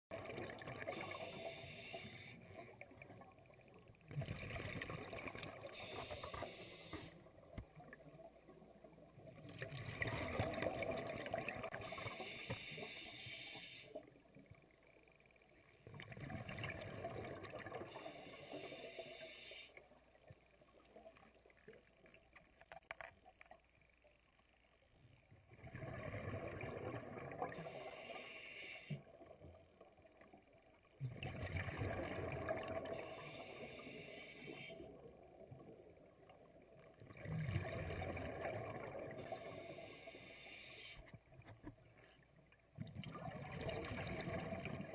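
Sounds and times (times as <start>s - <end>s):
scuba regulator breathing bubbles: 0.2s - 2.8s.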